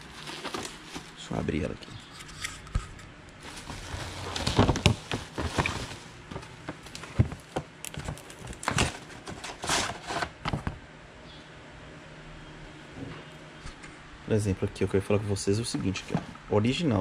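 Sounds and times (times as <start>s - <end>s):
packaging crinkling and rustling: 0.0s - 1.8s, 3.4s - 10.8s.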